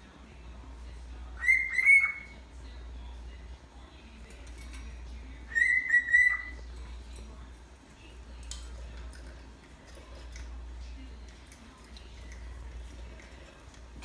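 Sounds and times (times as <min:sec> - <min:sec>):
parrot whistling: 0:01.4 - 0:02.3, 0:05.5 - 0:06.6
parrot chirps and clicks: 0:04.4 - 0:06.8.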